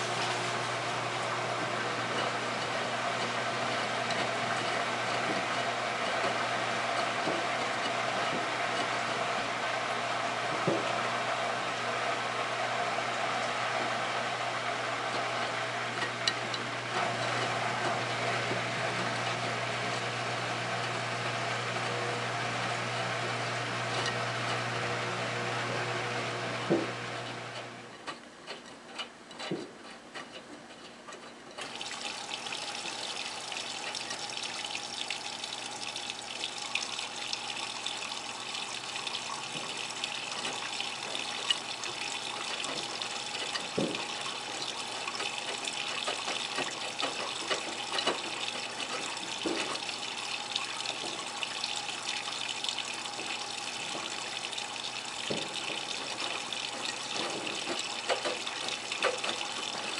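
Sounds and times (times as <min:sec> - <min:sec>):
washing machine hum: 0:00.0 - 0:59.9
water sloshing in washing machine: 0:00.0 - 0:59.9
drips and clicks: 0:31.6 - 0:59.9.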